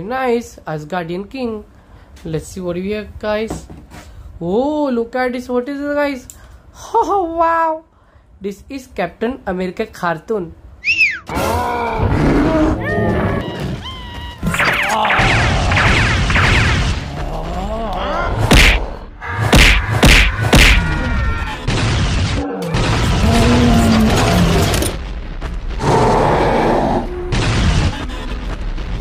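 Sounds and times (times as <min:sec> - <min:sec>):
cartoon fight impacts: 0:14.4 - 0:17.7, 0:18.3 - 0:25.0, 0:27.2 - 0:28.4.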